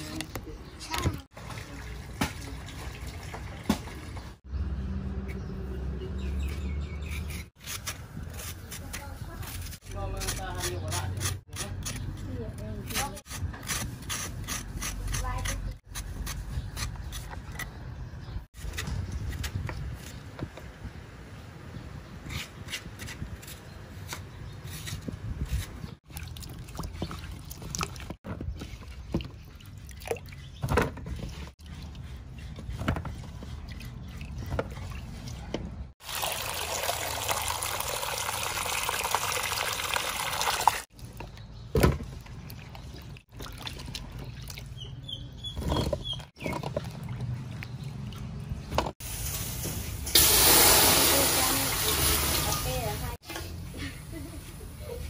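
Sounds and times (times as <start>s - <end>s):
water pouring: 36.0s - 40.9s.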